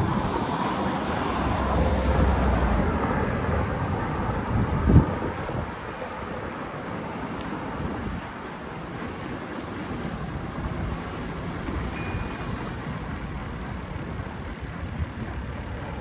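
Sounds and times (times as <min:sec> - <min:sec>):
wind noise on microphone: 0:00.0 - 0:06.6, 0:07.6 - 0:16.0
street noise: 0:00.0 - 0:16.0
faint high tone: 0:11.8 - 0:13.1.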